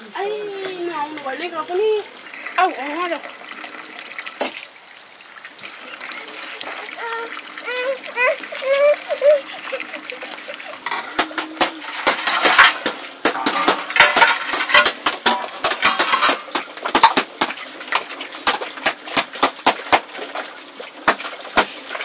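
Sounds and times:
metal cookware clinking and clattering: 9.7s - 20.4s.

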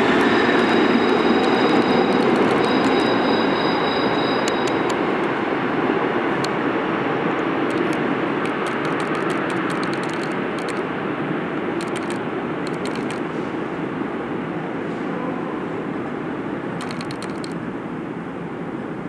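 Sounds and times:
high wheel squeal: 0.0s - 5.0s
subway train rumbling away: 0.0s - 19.0s
sharp ticks: 1.0s - 3.2s, 4.4s - 5.4s, 7.4s - 10.8s, 11.8s - 13.3s, 16.8s - 17.6s.

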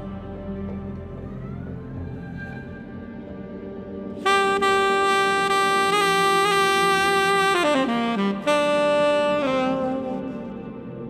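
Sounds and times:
saxophone solo: 0.0s - 11.0s
soft ambient backing: 0.0s - 11.0s.

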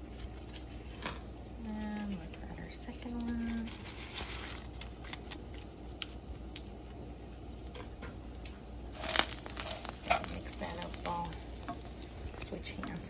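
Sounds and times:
small ticks and rustles: 0.0s - 13.0s
seasoning packet crinkling: 3.2s - 6.8s, 8.9s - 11.6s.

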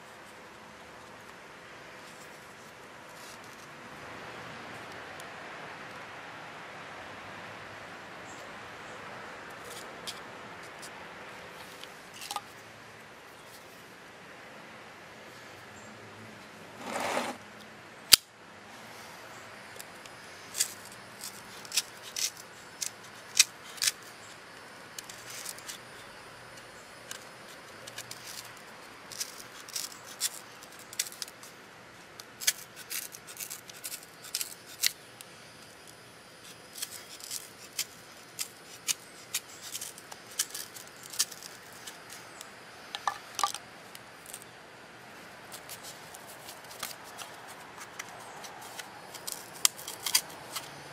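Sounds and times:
rustle: 0.0s - 50.9s
knife cutting cardboard: 16.8s - 17.4s.

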